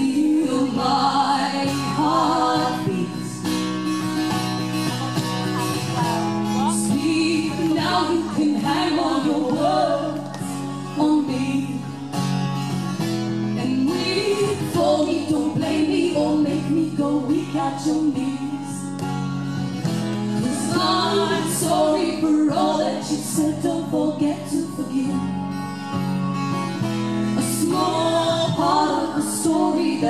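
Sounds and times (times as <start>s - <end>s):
woman singing: 0.0s - 3.5s, 5.6s - 12.0s, 13.5s - 19.0s, 20.4s - 25.5s, 27.4s - 30.0s
strummed acoustic guitar: 0.0s - 30.0s.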